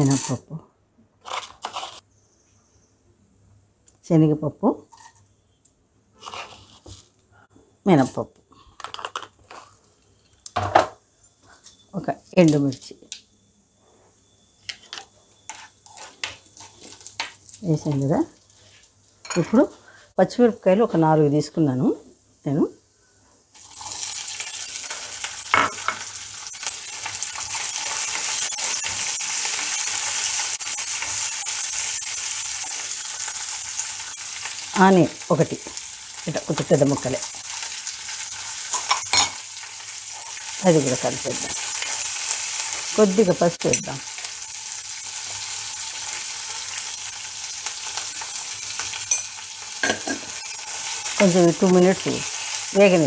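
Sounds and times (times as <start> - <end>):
chillies sizzling in hot oil: 0.0 - 0.6, 14.2 - 53.0
spatula stirring in pan: 15.4 - 17.3.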